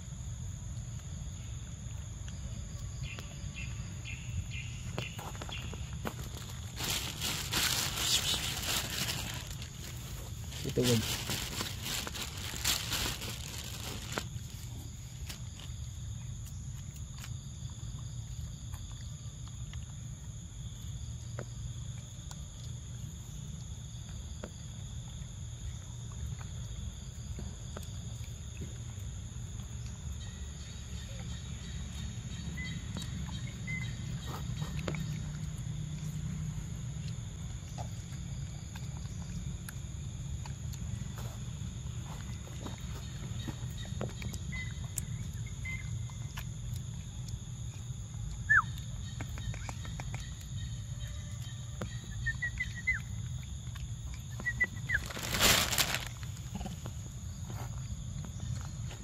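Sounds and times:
high insect buzz: 4.1s - 15.5s.

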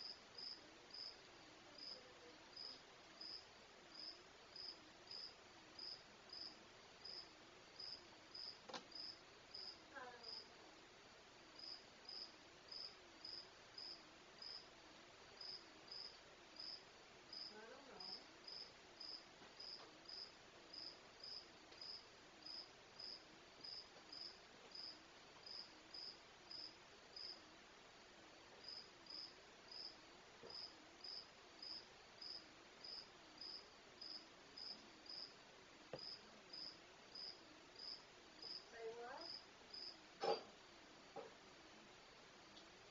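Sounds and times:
faint cricket chirping: 0.0s - 42.9s.

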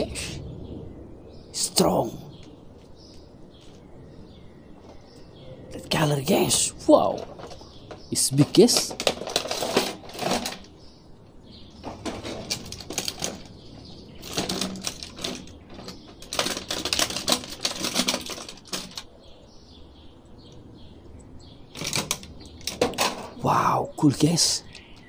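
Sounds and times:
plastic packaging crinkling: 8.6s - 10.7s, 14.2s - 19.0s.

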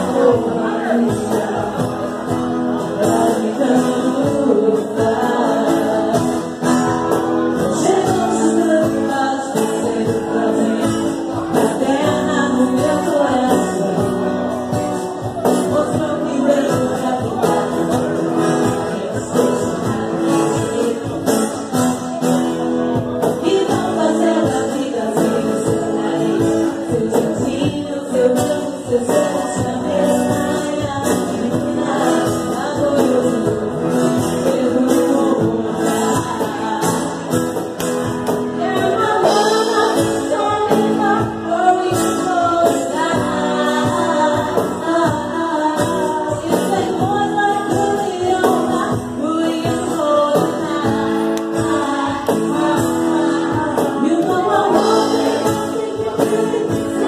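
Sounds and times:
strummed acoustic guitar: 0.0s - 57.0s
woman singing into a microphone: 0.0s - 57.0s
drum kit with cymbals: 28.4s - 57.0s.

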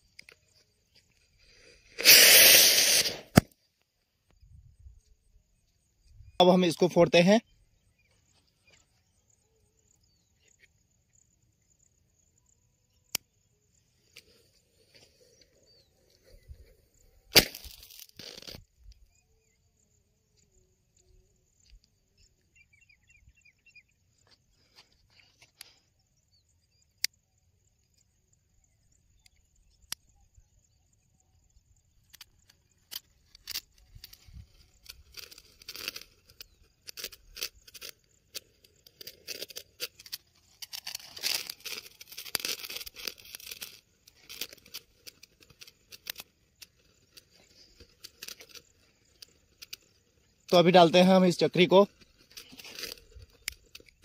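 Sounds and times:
crackling and pops: 0.0s - 4.4s, 14.0s - 19.2s, 31.9s - 54.0s.

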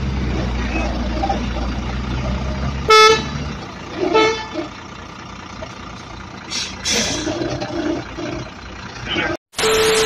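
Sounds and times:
vehicle horn toot: 2.9s - 3.4s, 4.1s - 4.6s.

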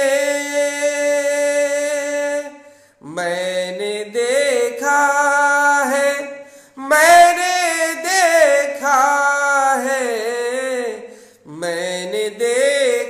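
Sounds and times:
man singing solo: 0.0s - 13.0s
breath: 2.6s - 3.0s, 6.4s - 6.8s, 11.1s - 11.5s.

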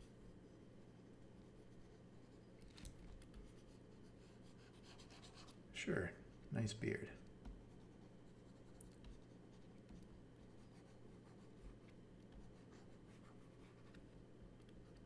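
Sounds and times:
low steady hum: 0.0s - 15.0s
stylus scratching on tablet: 3.3s - 5.6s, 7.1s - 14.1s.

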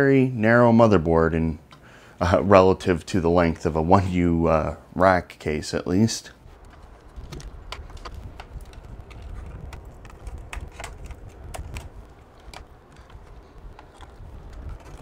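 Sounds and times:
low handling rumble: 6.4s - 15.0s.

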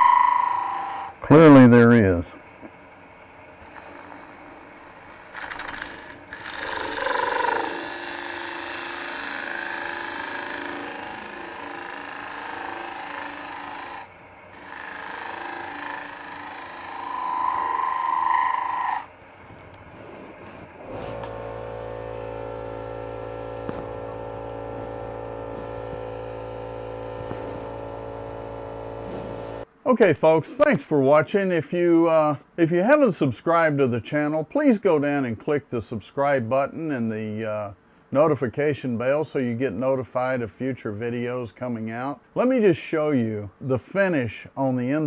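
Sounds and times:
ring tool cutting wood on lathe: 0.0s - 1.2s, 3.6s - 19.1s, 20.7s - 29.6s
steady hum: 7.7s - 30.7s.

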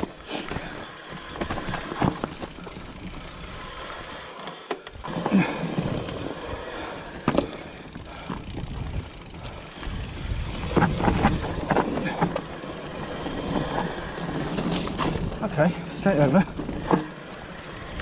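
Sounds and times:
bike knocks and rattles: 0.0s - 3.6s, 4.6s - 18.0s
tyres rumbling on dirt: 0.0s - 18.0s.

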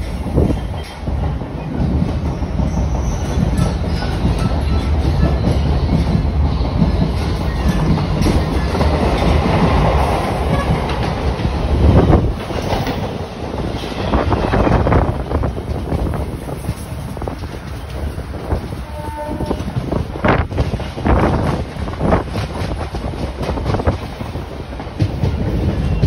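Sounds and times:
train wheels on track: 0.0s - 26.0s.

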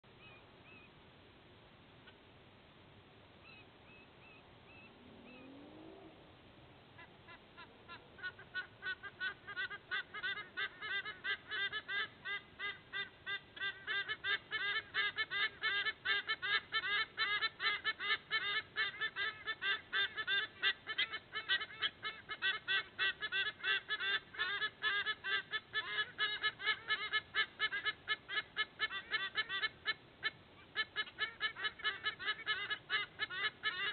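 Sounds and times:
sea eagles calling in duet: 7.0s - 33.9s.

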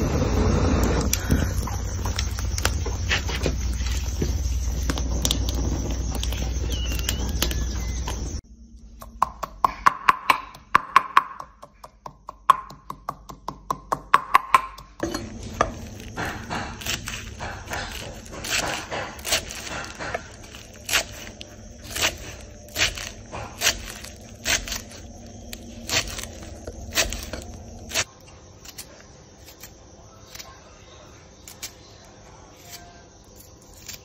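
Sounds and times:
knife chopping on wooden board: 9.0s - 24.9s.

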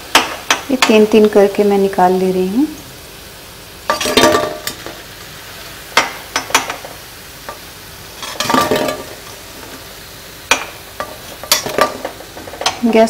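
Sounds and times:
food frying in hot oil: 0.0s - 13.0s
metal utensil scraping a pan: 3.9s - 5.0s, 8.1s - 9.7s.

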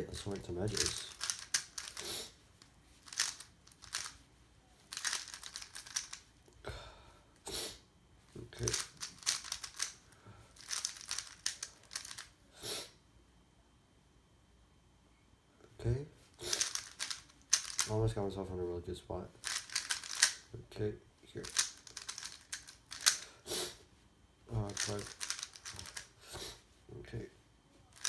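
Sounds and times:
puzzle cube clicking turns: 0.3s - 2.1s, 3.0s - 4.2s, 4.9s - 6.2s, 8.6s - 10.0s, 10.6s - 12.3s, 16.4s - 17.9s, 19.4s - 20.4s, 21.4s - 23.3s, 24.5s - 26.1s.

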